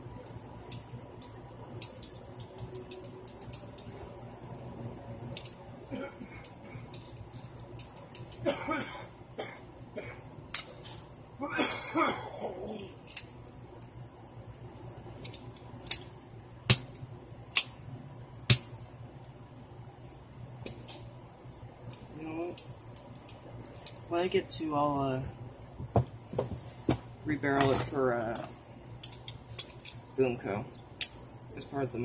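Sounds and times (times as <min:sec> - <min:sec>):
person coughing: 0:05.9 - 0:06.4, 0:08.5 - 0:10.2, 0:11.4 - 0:12.9
sharp plastic snaps: 0:15.2 - 0:17.8.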